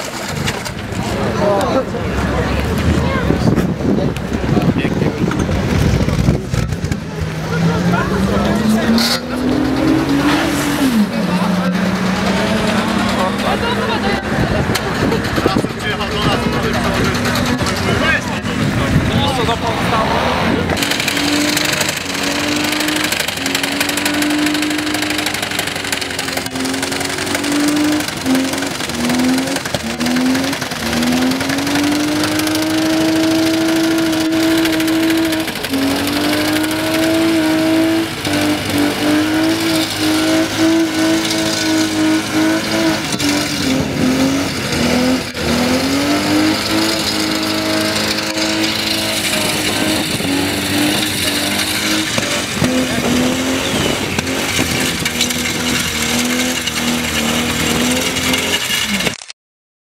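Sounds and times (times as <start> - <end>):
car engine revving high: 0.0 - 59.1
tyre squealing on concrete: 45.0 - 59.2.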